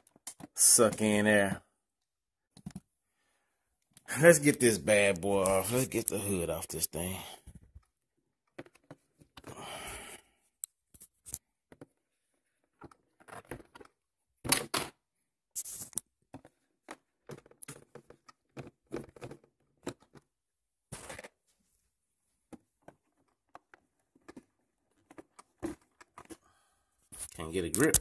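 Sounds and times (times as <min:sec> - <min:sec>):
plastic shell rustling: 0:07.5 - 0:09.6, 0:11.0 - 0:21.6, 0:22.4 - 0:28.0.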